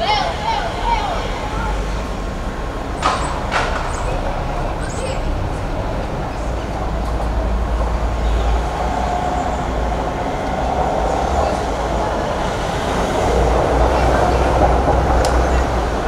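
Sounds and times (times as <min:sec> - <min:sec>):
low rumbling background noise: 0:00.0 - 0:16.0.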